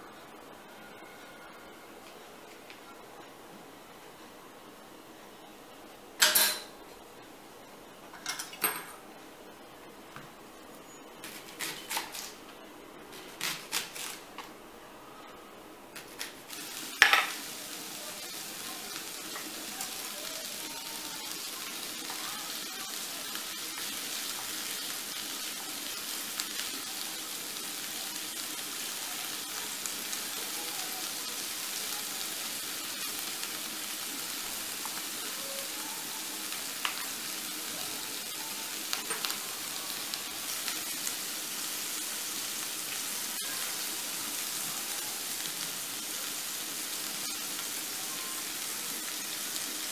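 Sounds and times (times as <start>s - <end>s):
leeks sizzling in a pan: 11.2s - 12.4s, 13.1s - 14.5s, 16.0s - 49.9s.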